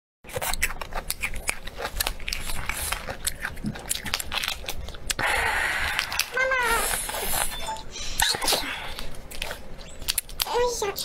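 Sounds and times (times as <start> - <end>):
prawn shell cracking and snapping: 0.3 - 5.2, 9.2 - 10.5.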